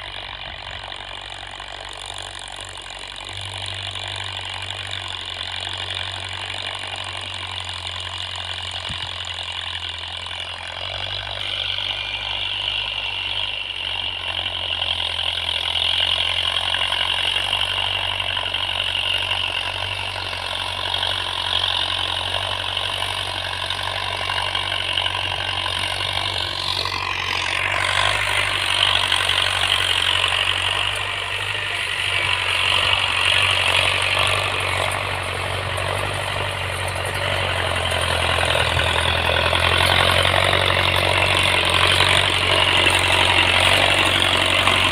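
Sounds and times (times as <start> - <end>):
tractor diesel engine running: 0.0 - 44.9.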